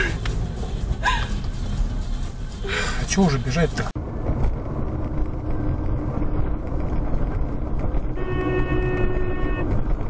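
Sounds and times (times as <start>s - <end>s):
car road and engine rumble: 0.0s - 10.0s.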